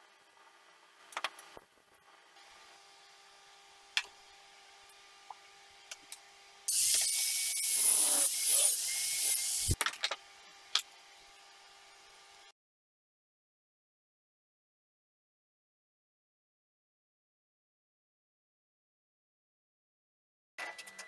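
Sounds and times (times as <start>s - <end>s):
angle grinder cutting steel: 6.7s - 9.8s.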